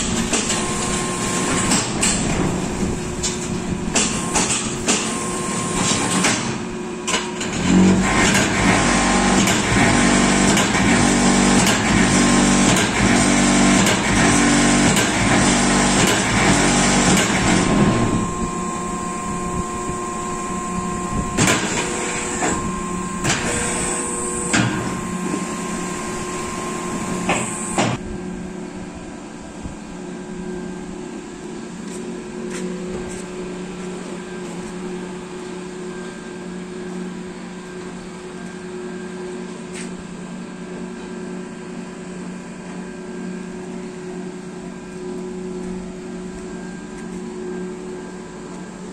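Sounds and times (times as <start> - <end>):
machine shuddering vibration: 0.0 - 31.5
motor hum: 0.0 - 39.4.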